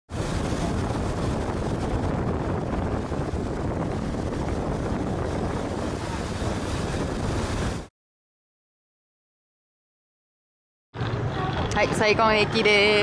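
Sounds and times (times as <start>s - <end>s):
boat running noise: 0.1s - 7.9s, 11.0s - 13.0s
wind buffeting microphone: 0.1s - 7.9s, 11.0s - 13.0s.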